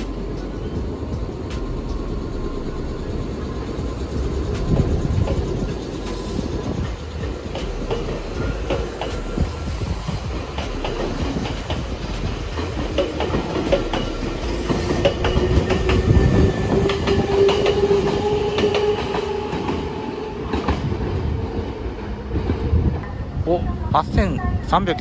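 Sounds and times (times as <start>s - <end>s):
train wheels clattering: 3.7s - 21.7s.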